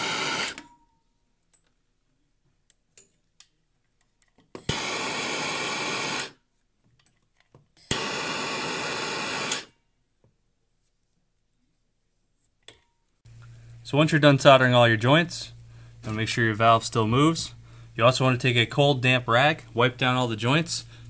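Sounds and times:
torch click: 7.8 - 9.7
torch flame hissing: 7.9 - 9.7.

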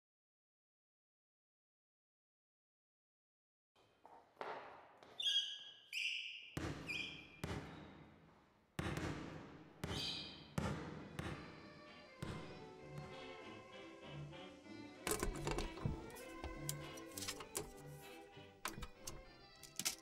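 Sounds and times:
sneaker squeaks: 5.0 - 7.9, 9.9 - 10.4
basketball bouncing on hardwood: 6.6 - 8.0, 8.8 - 11.5.

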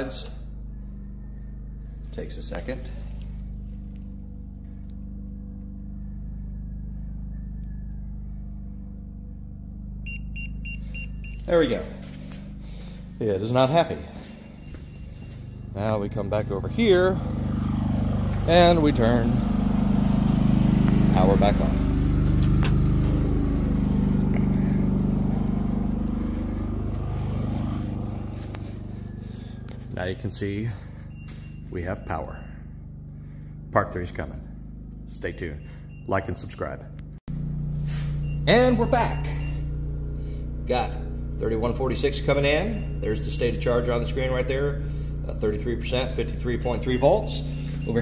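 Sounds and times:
generator engine running: 0.0 - 48.0
rapid warning beeps: 10.0 - 17.0, 27.2 - 33.5, 34.6 - 36.8, 37.9 - 48.0.

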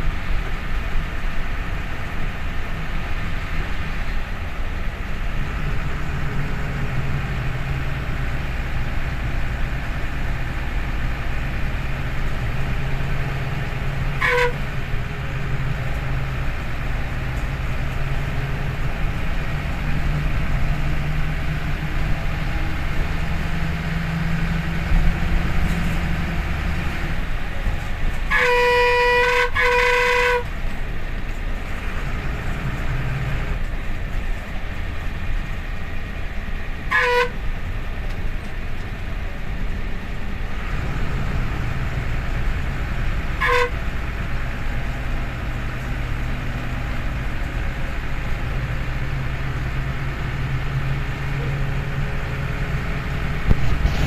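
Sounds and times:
bus engine hum: 0.0 - 54.0
road noise: 0.0 - 54.0
bus horn blasts: 12.3 - 16.4, 27.5 - 30.7, 36.9 - 37.7, 43.0 - 44.4.

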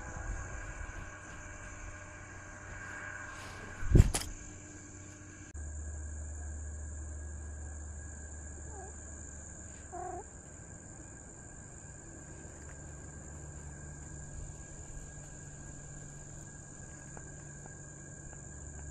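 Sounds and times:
insect chorus: 0.0 - 18.9
short animal calls: 8.6 - 9.0, 9.8 - 10.3.

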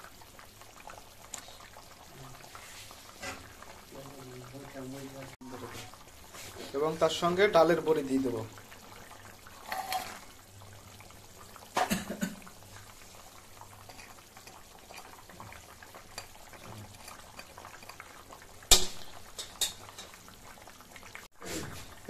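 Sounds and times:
curry bubbling in a pan: 0.0 - 22.0.

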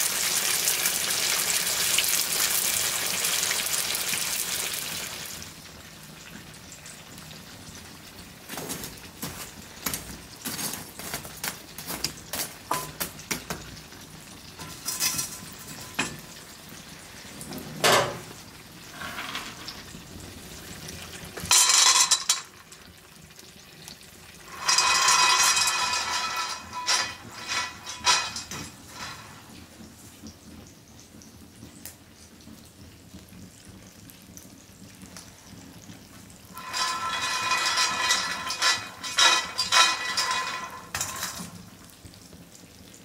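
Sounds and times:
meat sizzling in fat: 0.0 - 43.0
metal tool scraping embers: 14.6 - 16.4, 24.4 - 29.4, 36.5 - 41.6.

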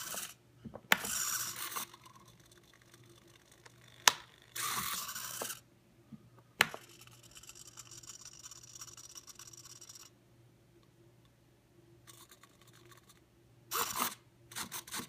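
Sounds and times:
servo whirring: 0.0 - 2.4, 4.0 - 5.6, 13.7 - 15.0
faint buzzing: 0.0 - 15.0.

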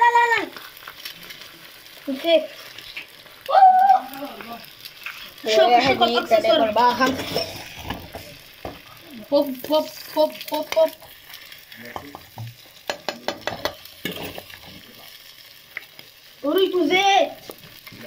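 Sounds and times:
eggs sizzling in a frying pan: 0.0 - 18.0
spatula scraping a pan: 4.9 - 8.8, 9.6 - 15.2.

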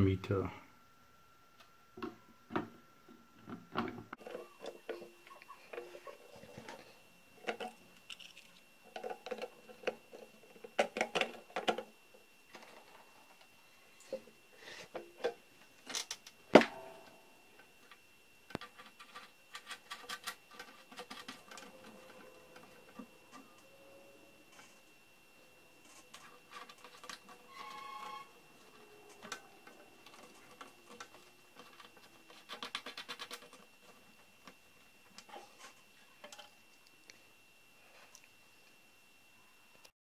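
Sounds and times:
plastic parts clicking and tapping: 7.4 - 11.9, 17.8 - 23.4.

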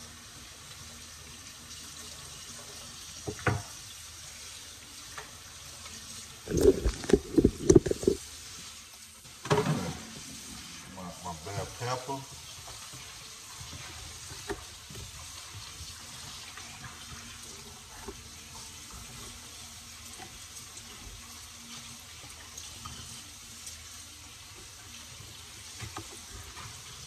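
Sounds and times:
bacon sizzling in frying pan: 0.0 - 27.0.

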